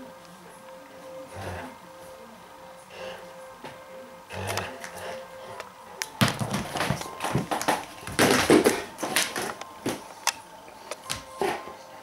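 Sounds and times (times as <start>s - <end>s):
dog paws scuffling on floor: 6.2s - 10.2s.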